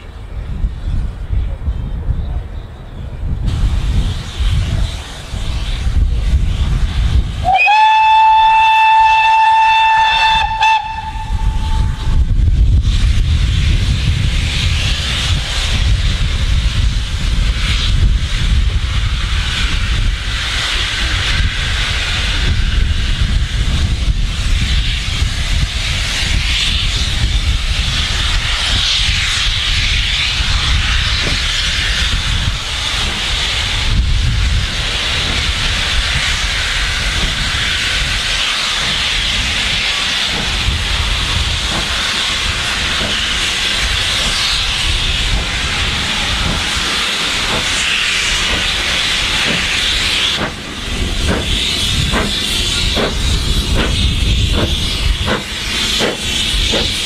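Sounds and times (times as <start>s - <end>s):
steam hissing: 3.2s - 57.0s
steam locomotive whistle: 7.4s - 12.2s.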